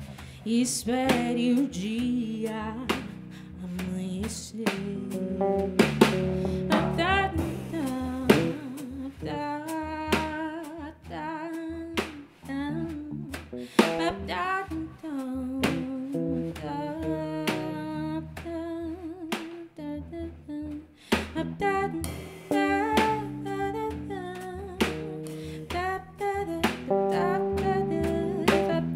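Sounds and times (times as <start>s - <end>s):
drum accents: 4.7s - 9.4s, 13.2s - 14.4s, 22.0s - 26.0s, 26.6s - 28.9s
live band music: 5.0s - 10.3s, 12.4s - 14.4s, 15.7s - 18.0s, 22.0s - 26.0s, 26.6s - 28.9s.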